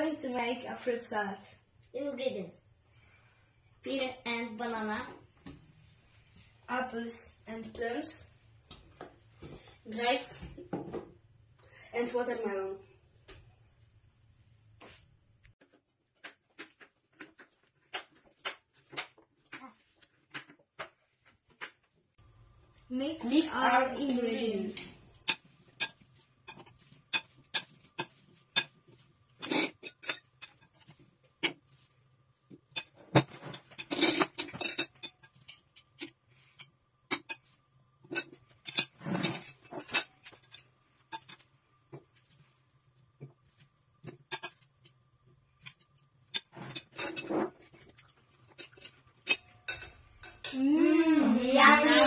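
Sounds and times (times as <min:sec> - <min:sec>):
cutlery clinking on glass bowl: 0:48.6 - 0:50.6.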